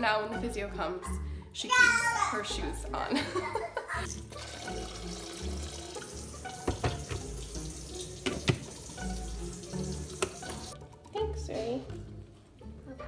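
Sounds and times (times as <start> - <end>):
background music: 0.0 - 13.0
tap water running: 4.1 - 11.2
kettle knocks and clicks: 6.6 - 7.3, 8.2 - 8.7.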